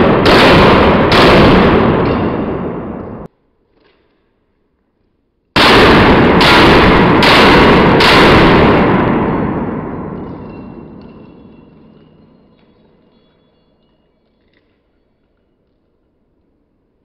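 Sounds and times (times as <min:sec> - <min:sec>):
pistol shots echoing: 0:00.0 - 0:03.3, 0:05.6 - 0:12.7.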